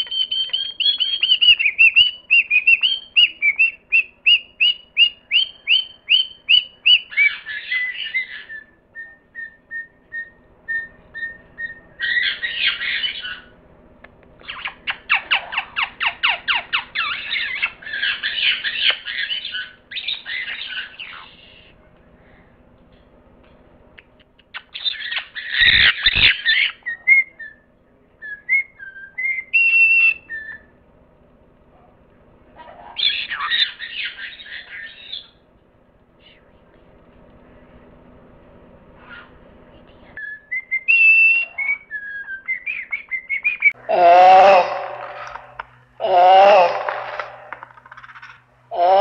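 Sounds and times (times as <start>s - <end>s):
lorikeet chattering and screeching: 0.0s - 8.7s, 9.4s - 13.5s, 14.4s - 21.6s, 24.6s - 27.0s, 32.8s - 35.4s.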